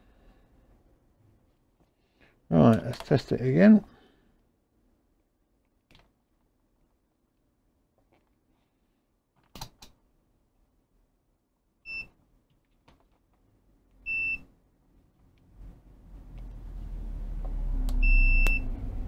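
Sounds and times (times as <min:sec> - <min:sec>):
multimeter beeps: 0:11.9 - 0:12.2, 0:14.0 - 0:14.5, 0:18.0 - 0:18.6.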